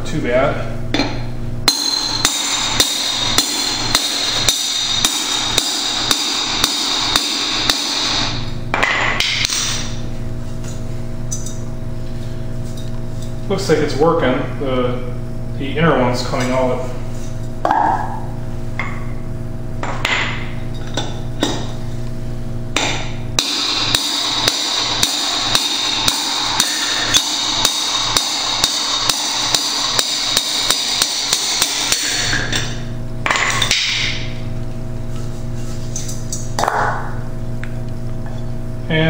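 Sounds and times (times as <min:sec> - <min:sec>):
hammer striking metal driver: 0:00.9 - 0:09.9, 0:22.8 - 0:34.3.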